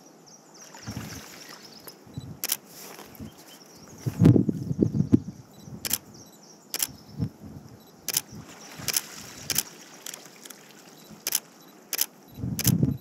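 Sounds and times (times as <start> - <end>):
camera shutter clicks: 2.4 - 2.6, 6.8 - 7.0, 8.1 - 10.6, 11.2 - 12.8.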